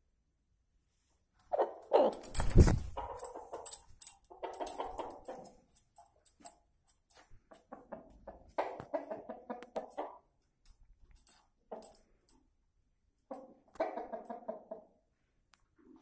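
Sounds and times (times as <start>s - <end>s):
chickens softly clucking: 1.4s - 2.2s, 4.3s - 5.6s, 7.4s - 10.4s, 13.2s - 16.0s.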